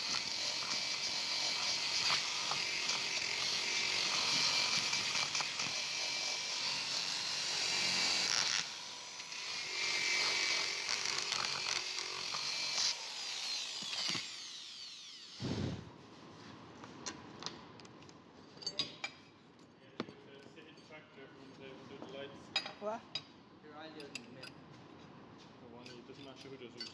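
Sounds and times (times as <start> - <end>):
power tool motor whine: 0.0 - 15.8.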